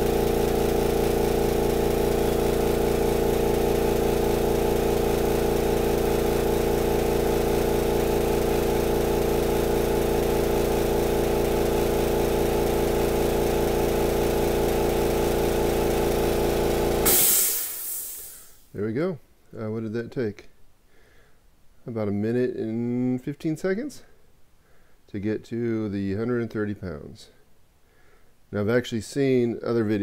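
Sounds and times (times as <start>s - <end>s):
air compressor running: 0.0s - 18.7s
air release hiss: 17.0s - 18.6s.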